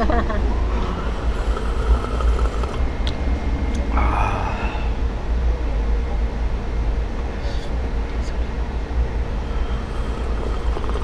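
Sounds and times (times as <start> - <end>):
street rumble: 0.0 - 11.0
slurp from cup: 0.8 - 2.8, 9.6 - 11.0.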